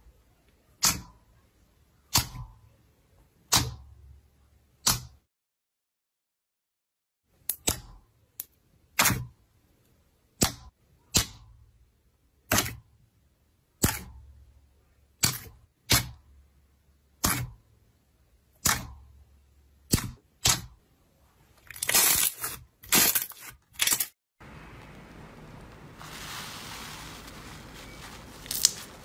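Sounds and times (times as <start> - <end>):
slime crackling pops: 28.4 - 28.9
slime popping: 28.4 - 28.9.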